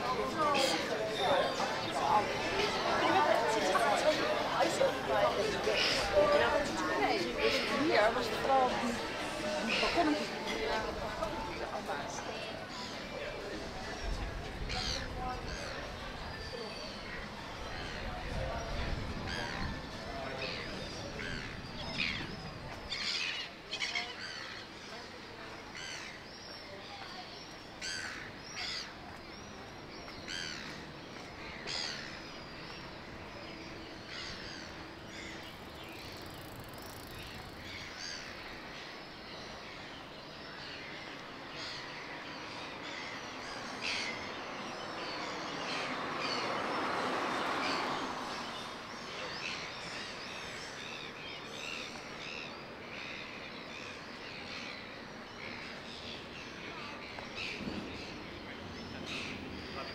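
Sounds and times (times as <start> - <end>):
small birds chirping: 20.4 - 59.9.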